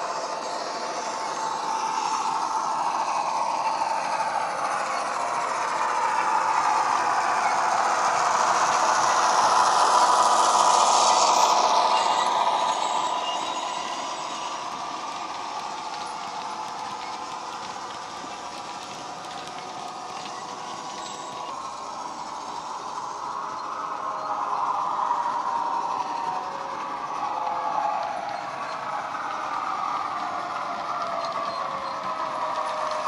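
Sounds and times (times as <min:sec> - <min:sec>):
model wagons rolling: 0:00.0 - 0:33.0.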